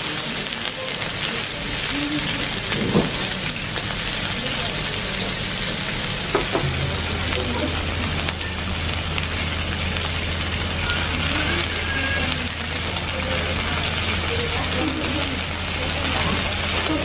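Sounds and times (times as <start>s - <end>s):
offal sizzling on a grill: 0.0s - 17.0s
low steady hum: 5.7s - 14.6s.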